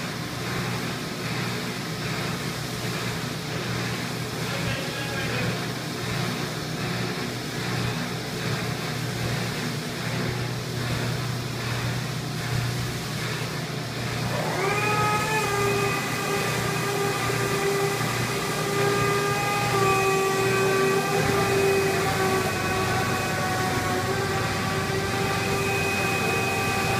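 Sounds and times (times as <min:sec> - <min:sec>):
machine whine: 0:10.1 - 0:26.9
machinery humming: 0:10.2 - 0:26.9.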